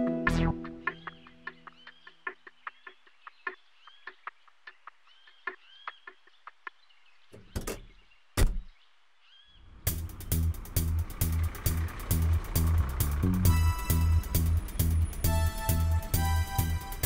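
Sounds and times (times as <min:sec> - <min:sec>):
loud knocking thuds: 0:07.4 - 0:08.7.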